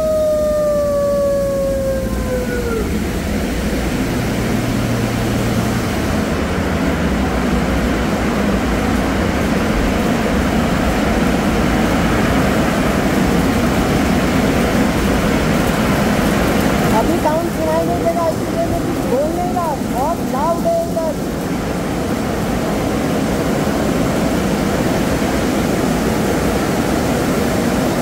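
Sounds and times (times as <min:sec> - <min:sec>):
falling wail: 0:00.0 - 0:03.8
car wash machinery roar: 0:00.0 - 0:28.0.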